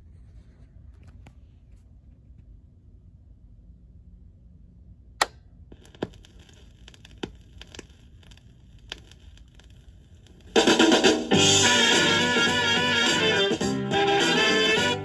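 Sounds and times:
vinyl clicks and pops: 5.2 - 11.3
vinyl surface hiss: 5.7 - 15.0
record music playing: 10.4 - 15.0.

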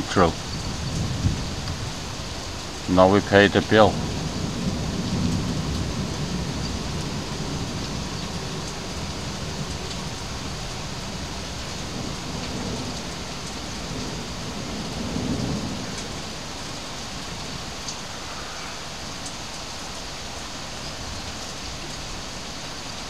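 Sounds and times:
thunder rumbling: 0.0 - 19.1
heavy rain: 0.0 - 23.0.

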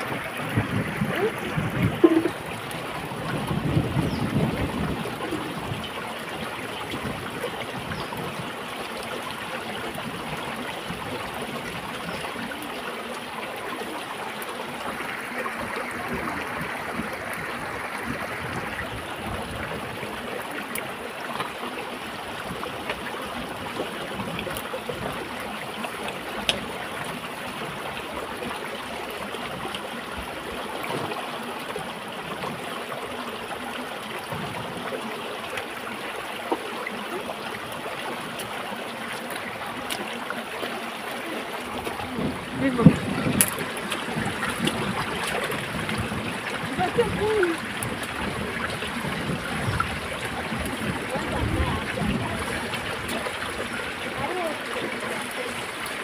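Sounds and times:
stream water running: 0.0 - 56.0.

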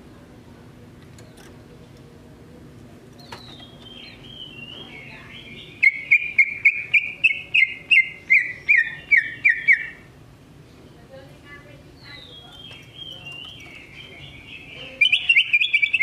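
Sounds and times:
bird singing: 3.2 - 10.1, 11.9 - 16.0.

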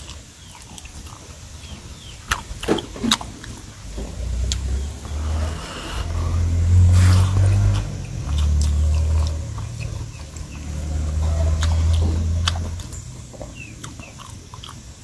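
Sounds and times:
man chewing: 0.0 - 15.0
wet mouth clicks: 2.2 - 10.6, 11.2 - 15.0
low rumble: 3.6 - 13.7.

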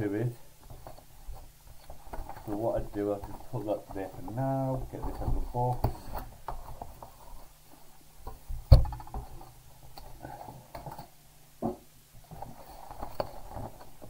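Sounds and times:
rustling of packing paper: 0.7 - 7.6.

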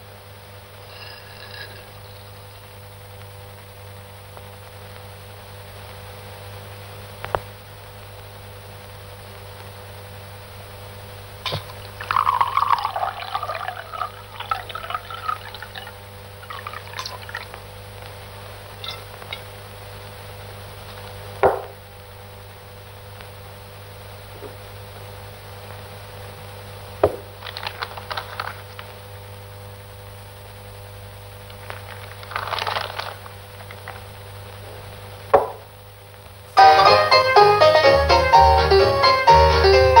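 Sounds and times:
steady hum: 0.0 - 37.7
liquid pouring into glass bottle: 11.5 - 17.6, 18.8 - 19.5
sharp knock: 21.4 - 21.8, 35.3 - 35.6.

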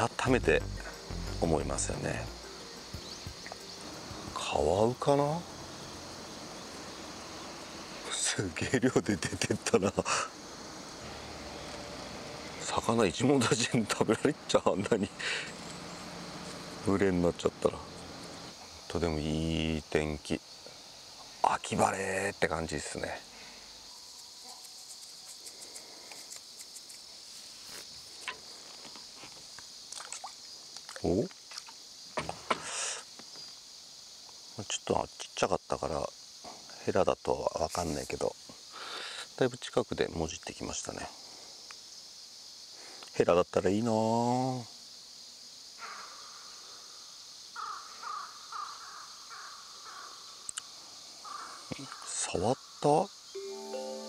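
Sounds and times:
bird calling: 0.0 - 5.1
insects singing: 0.0 - 54.0
faint clicks: 50.5 - 50.7.

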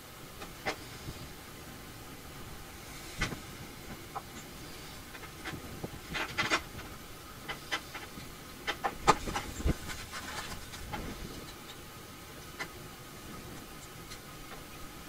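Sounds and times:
hands rustling: 9.0 - 11.6.

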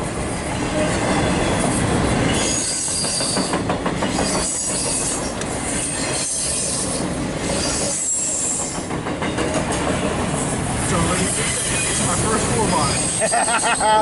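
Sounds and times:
high wheel squeal: 2.3 - 3.5, 4.1 - 8.8, 11.1 - 14.0
wheels clicking over rail joints: 7.0 - 10.5.

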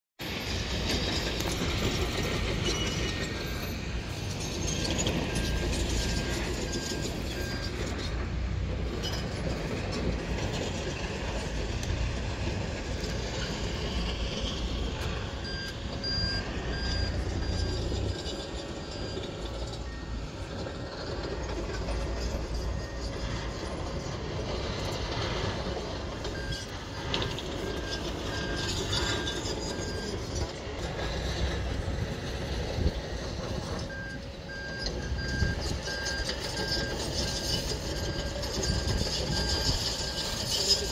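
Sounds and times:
distant jet airliner roar: 0.2 - 40.9.

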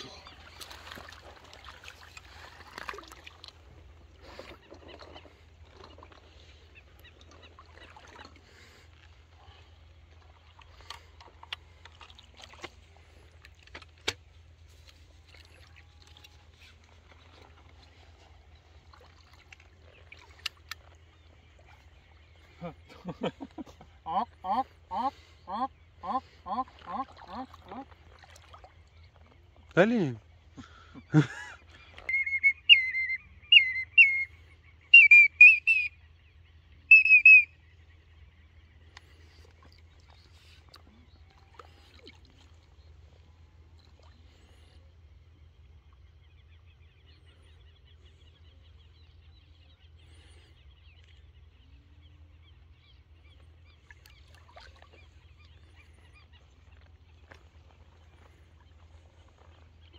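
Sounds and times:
small clicks and splashes: 0.0 - 22.5, 26.7 - 29.8, 38.8 - 44.8, 50.9 - 51.4, 53.2 - 59.9
floodwater sloshing and trickling: 0.0 - 32.3, 35.7 - 59.9
duck whistle call: 32.1 - 34.3, 34.9 - 36.0, 36.9 - 37.5.

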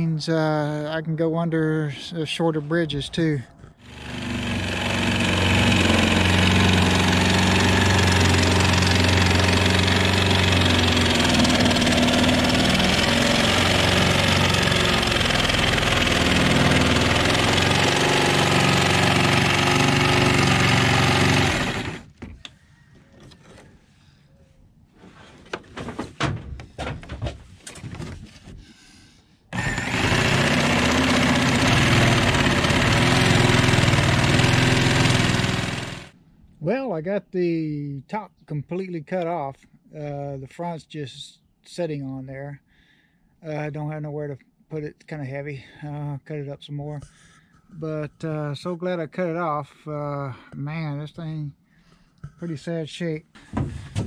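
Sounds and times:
jigsaw cutting fiberglass: 3.8 - 22.2, 29.5 - 36.2.

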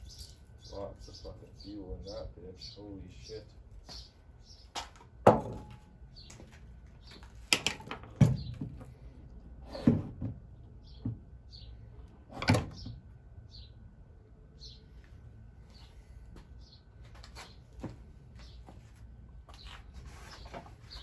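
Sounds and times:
objects knocking and clunking: 4.8 - 5.9, 7.4 - 9.0, 9.8 - 11.3.

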